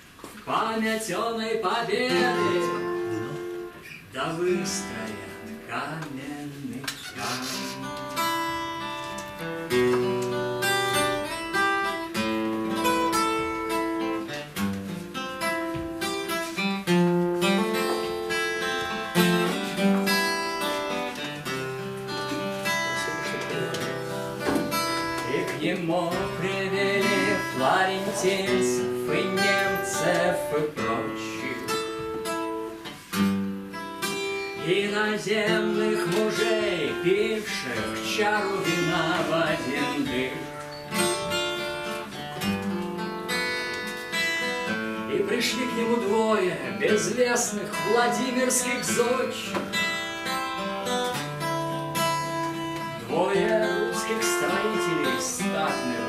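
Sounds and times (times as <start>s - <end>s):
acoustic guitar melody: 0.0s - 56.0s.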